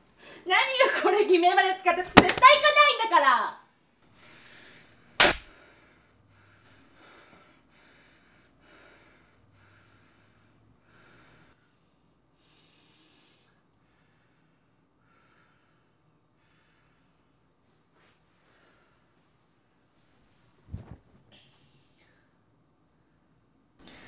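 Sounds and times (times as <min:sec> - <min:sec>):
sharp slap: 0:02.1 - 0:02.6, 0:05.2 - 0:05.5.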